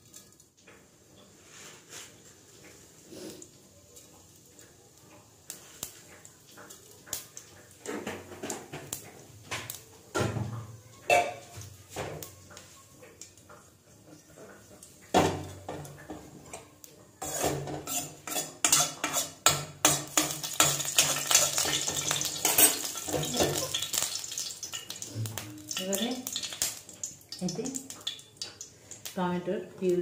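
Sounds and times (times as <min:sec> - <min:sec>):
spoon clinking on metal pan: 0:11.0 - 0:11.6, 0:17.2 - 0:24.1.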